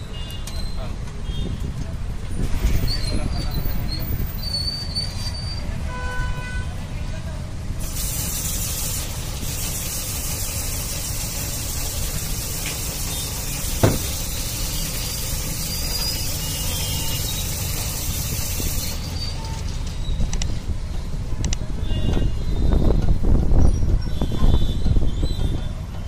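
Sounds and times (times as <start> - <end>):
road traffic rumble: 0.0 - 26.0
sharp knock: 13.8 - 14.2.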